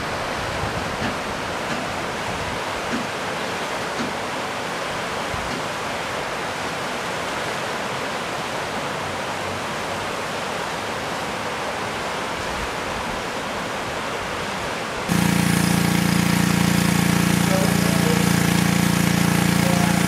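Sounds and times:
river rapids rushing over rocks: 0:00.0 - 0:15.1
steady mechanical hum: 0:14.9 - 0:20.0.

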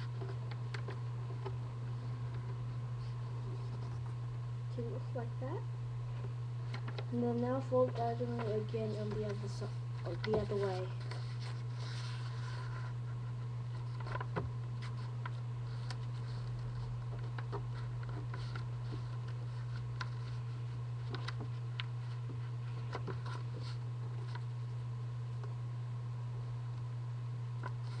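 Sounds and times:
steady low hum: 0:00.0 - 0:28.0
paper rustling and creasing: 0:06.6 - 0:24.5.

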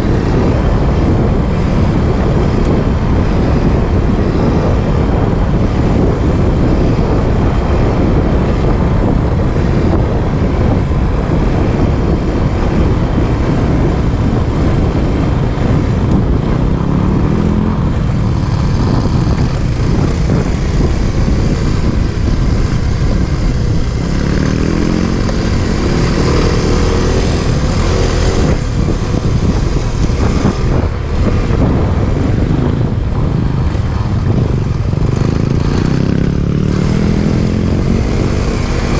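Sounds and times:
wind noise: 0:00.0 - 0:38.9
dirt bike engine revving: 0:23.1 - 0:30.8, 0:34.2 - 0:38.9.

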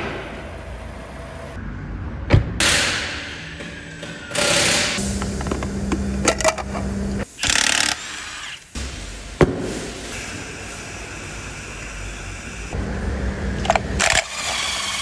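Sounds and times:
impact wrench bursts: 0:07.3 - 0:08.6.

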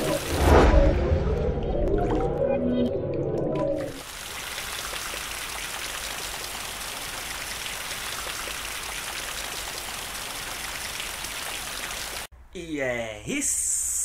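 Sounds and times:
steady rain: 0:00.0 - 0:00.6, 0:04.0 - 0:12.3.

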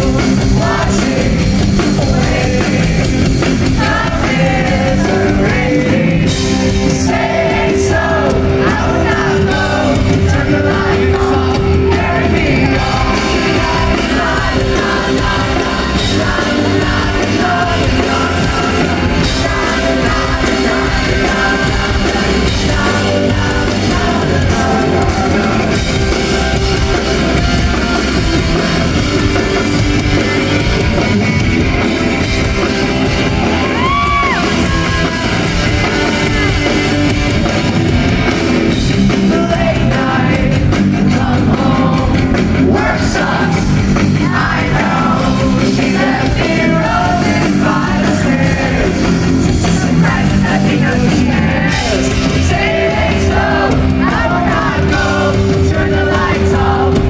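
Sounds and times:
person singing into microphone: 0:00.0 - 0:27.4, 0:39.0 - 0:57.0
drums: 0:00.0 - 0:57.0
electric bass: 0:00.0 - 0:57.0.

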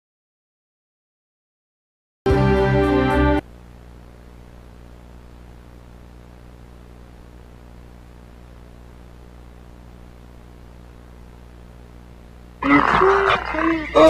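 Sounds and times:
steady low hum with hiss: 0:03.2 - 0:14.0.

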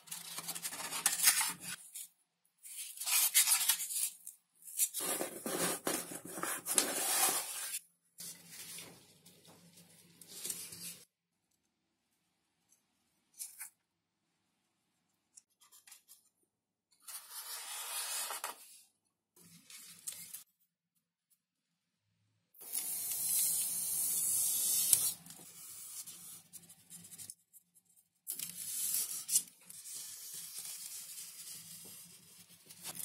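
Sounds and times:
rubbing and scraping: 0:04.8 - 0:09.0.

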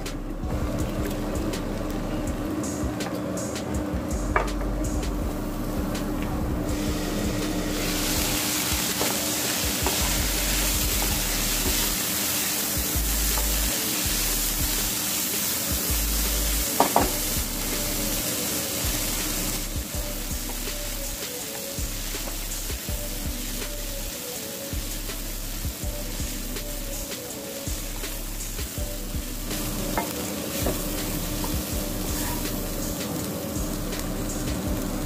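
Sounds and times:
vegetables sizzling in a pan: 0:00.2 - 0:03.5, 0:04.1 - 0:35.0
spatula knocking on pan: 0:16.7 - 0:17.2.

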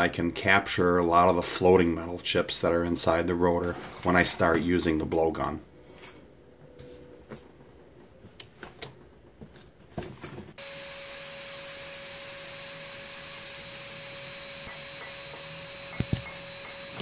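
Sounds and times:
shop vacuum whining: 0:10.5 - 0:17.0.

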